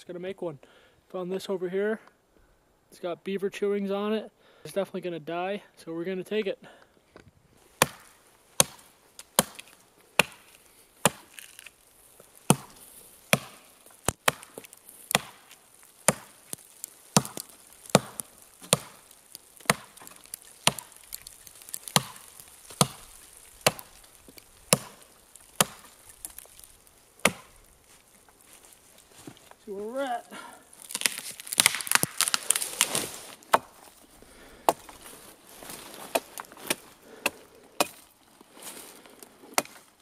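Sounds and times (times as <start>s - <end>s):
axe chopping into tree trunk: 7.8s - 11.7s, 12.4s - 27.6s, 30.8s - 33.9s, 35.8s - 38.0s, 39.5s - 39.8s.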